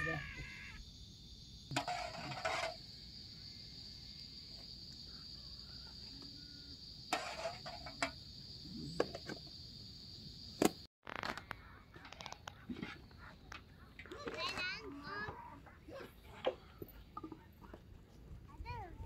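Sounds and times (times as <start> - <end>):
insect chirring: 0.0 - 13.2.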